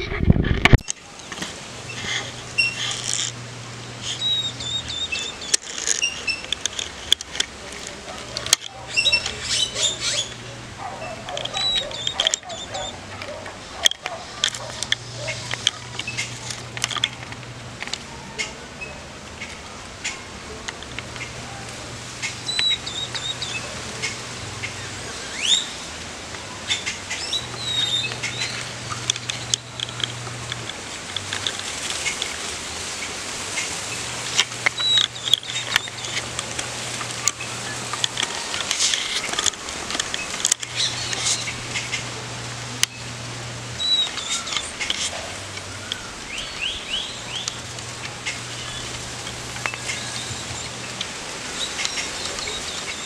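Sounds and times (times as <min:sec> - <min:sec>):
songbirds chirping and whistling: 0:00.8 - 0:17.4, 0:18.0 - 0:53.0
sharp clicks: 0:34.3 - 0:42.1.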